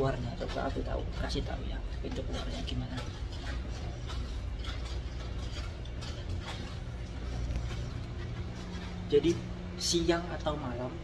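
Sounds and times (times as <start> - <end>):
low machinery and ventilation hum: 0.0 - 11.0
soft footsteps: 0.0 - 11.0.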